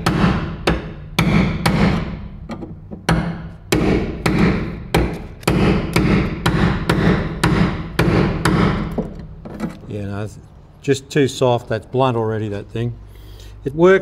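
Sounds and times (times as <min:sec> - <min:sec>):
hammer striking chisel into steel: 0:00.0 - 0:02.3, 0:03.0 - 0:09.1.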